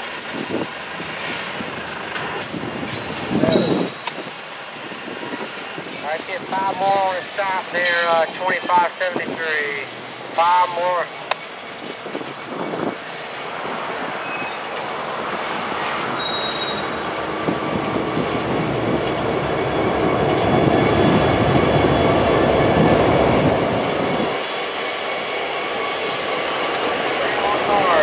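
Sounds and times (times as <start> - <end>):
train wheel squeal: 2.9 - 6.2, 11.4 - 18.3, 23.8 - 28.0.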